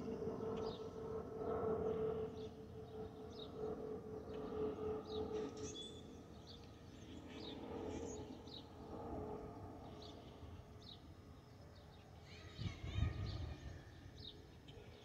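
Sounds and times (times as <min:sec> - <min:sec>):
jet engine rumble: 0:00.0 - 0:11.7.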